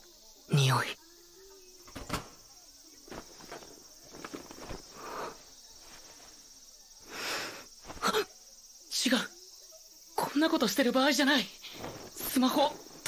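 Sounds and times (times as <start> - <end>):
cloth rustling: 3.0 - 6.6, 7.8 - 8.2, 11.7 - 13.0
boy sniffing: 7.0 - 8.3.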